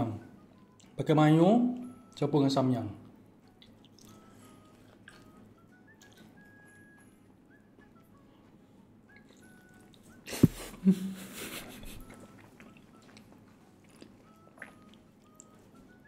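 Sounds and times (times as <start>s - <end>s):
crunchy chewing: 3.4s - 6.5s, 12.0s - 15.6s.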